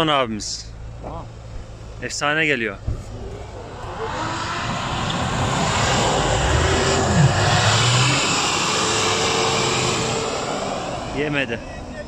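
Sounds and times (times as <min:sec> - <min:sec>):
truck engine revving hard: 0:03.2 - 0:11.6.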